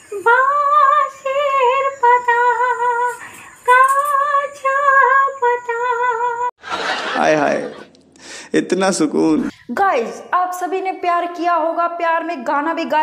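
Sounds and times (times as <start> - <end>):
woman singing unaccompanied: 0.0 - 6.6, 9.7 - 13.0
singer breathing: 3.1 - 3.7, 8.2 - 8.6.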